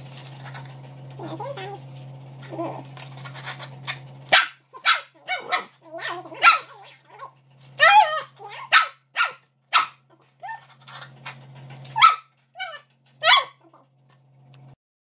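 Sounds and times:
dog barking and yipping: 0:04.2 - 0:13.9.

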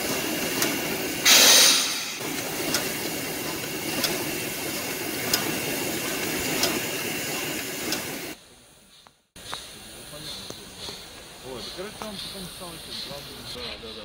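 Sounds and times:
steam hissing: 0:00.0 - 0:14.0
faint clicks: 0:05.3 - 0:05.6.

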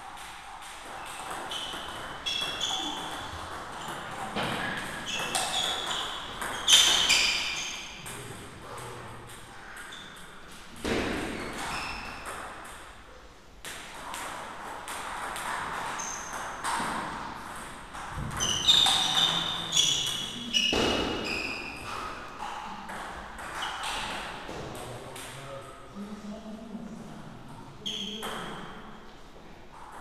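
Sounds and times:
ping pong ball clicking off paddles: 0:00.2 - 0:08.3
ball bouncing on table: 0:09.3 - 0:12.9, 0:13.6 - 0:25.3.

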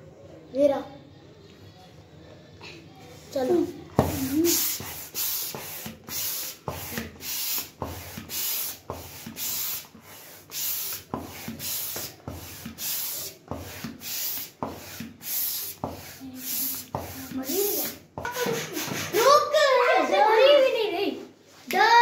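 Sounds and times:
hand air pump whooshing: 0:04.0 - 0:19.3.

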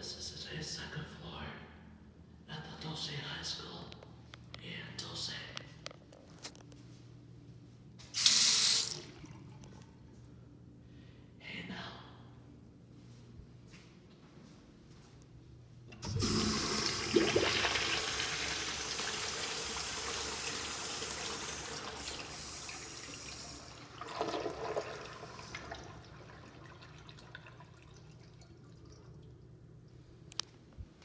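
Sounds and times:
urinal flushing: 0:08.2 - 0:10.2, 0:15.9 - 0:29.6.

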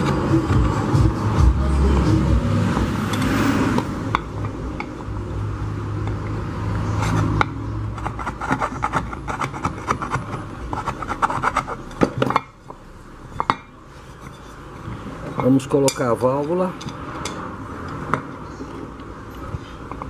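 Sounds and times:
filing metal: 0:06.2 - 0:12.6
low steady hum: 0:09.1 - 0:17.8.

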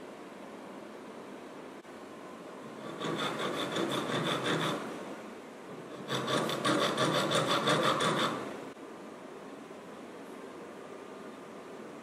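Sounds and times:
hand file rasping on wax: 0:02.7 - 0:04.9, 0:05.9 - 0:08.5.

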